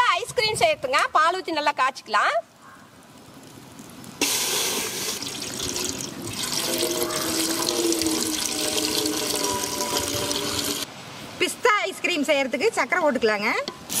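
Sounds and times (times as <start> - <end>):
milk pouring into metal pan: 5.1 - 10.8.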